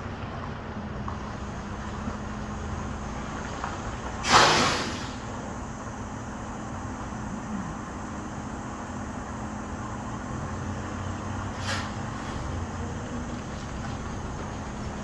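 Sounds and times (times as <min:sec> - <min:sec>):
diesel truck idling: 0:00.0 - 0:15.0
air brakes hissing: 0:04.1 - 0:05.6, 0:11.4 - 0:12.6.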